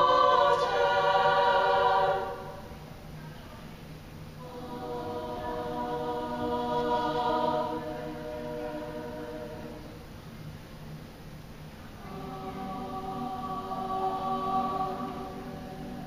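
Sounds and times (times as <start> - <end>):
girls' choir singing held chord: 0.0 - 3.1, 4.3 - 10.2, 11.9 - 16.0.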